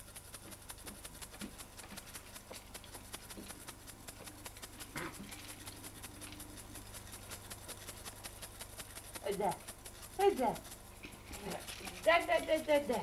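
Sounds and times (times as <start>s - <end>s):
videotape hiss: 0.0s - 13.0s.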